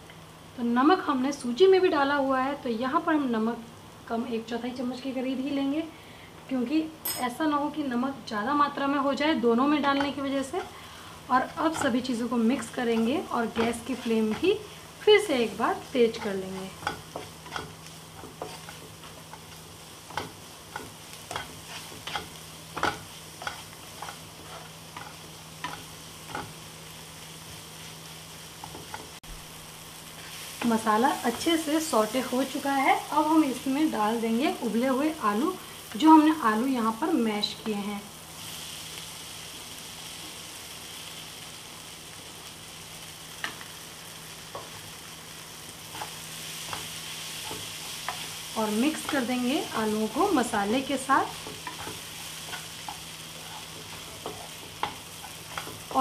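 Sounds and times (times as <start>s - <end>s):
masala sizzling in a pan: 0.0s - 56.0s
wooden spatula scraping a pan: 16.2s - 19.5s, 20.1s - 26.5s, 51.3s - 56.0s.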